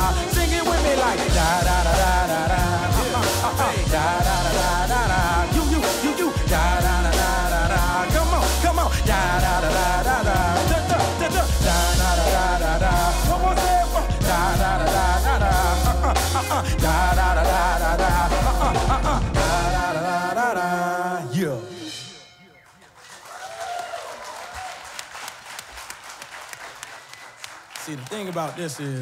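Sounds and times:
bass and drums: 0.0s - 20.1s
backing singers vocalizing: 0.0s - 22.2s.

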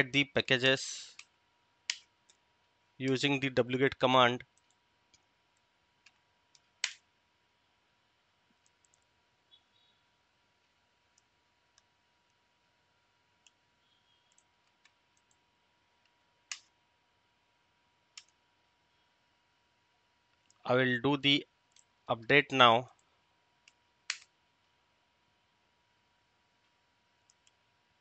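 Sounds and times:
faint steady tone: 0.0s - 28.0s
mouse and keyboard clicks: 23.7s - 24.3s.

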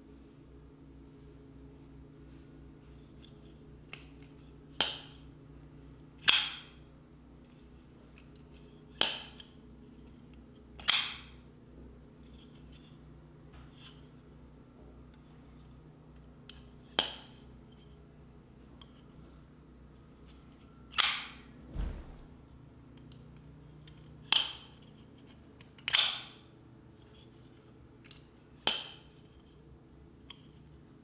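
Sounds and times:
low steady hum: 0.0s - 31.0s
folding knife snapping open and shut: 6.2s - 6.7s, 10.8s - 11.3s, 25.7s - 26.3s.

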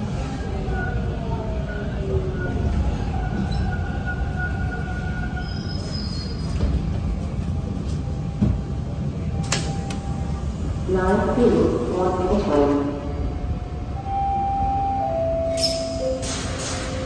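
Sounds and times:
wheels rumbling on rail: 0.0s - 17.0s
wheel squeal: 5.3s - 6.7s.

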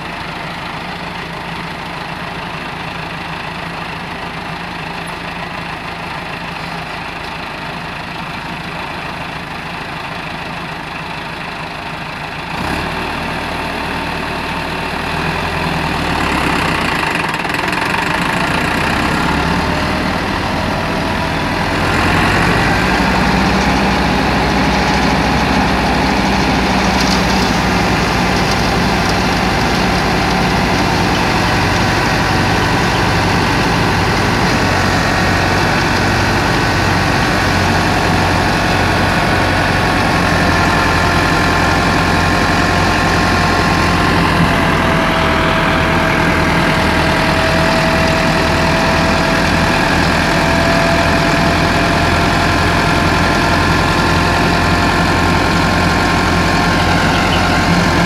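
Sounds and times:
tractor diesel engine: 0.0s - 58.0s
thresher running: 16.0s - 58.0s.

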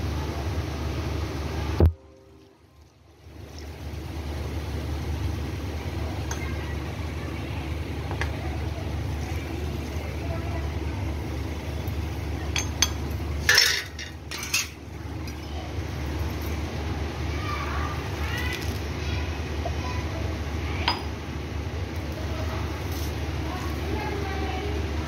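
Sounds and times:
low steady rumble: 0.0s - 25.0s
metal bowl and ladle clinking: 12.6s - 14.8s.

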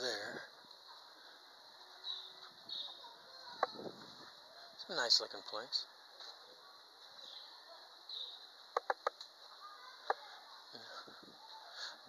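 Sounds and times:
faint high chirps: 0.7s - 3.9s, 6.1s - 10.8s.

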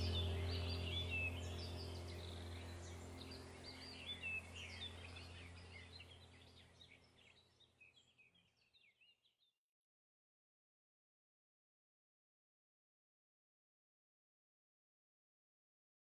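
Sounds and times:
steady low drone: 0.0s - 7.4s
small birds chirping and trilling: 0.0s - 9.5s.

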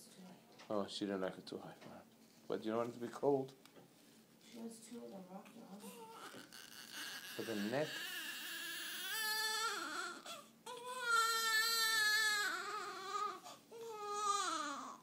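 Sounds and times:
newborn baby crying: 5.8s - 15.0s.

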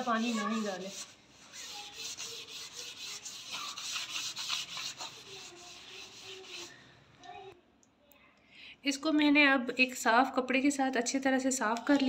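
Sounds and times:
cloth wiping metal panel: 0.0s - 6.8s.

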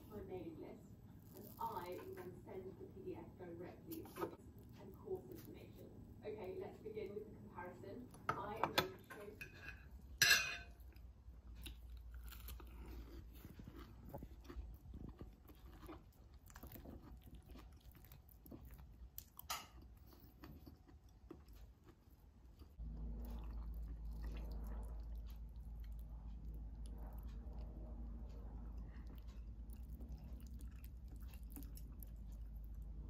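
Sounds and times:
low hum: 22.5s - 33.0s.

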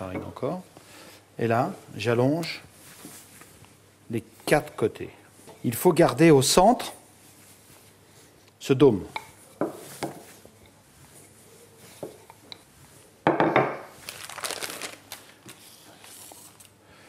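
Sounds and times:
dough rustling and rubbing: 5.7s - 13.2s.

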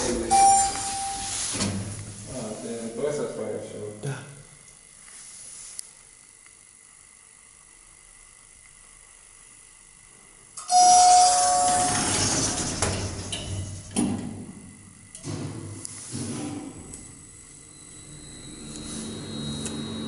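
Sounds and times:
steady electronic tone: 0.0s - 1.6s, 17.0s - 20.0s
lift doors closing: 0.0s - 2.0s, 10.6s - 14.4s.

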